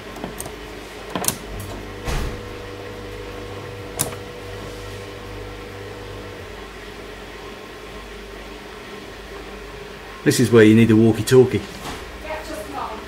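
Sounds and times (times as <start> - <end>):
circuit breaker switches clicking: 0.0 - 4.6
steady low hum: 0.0 - 10.2.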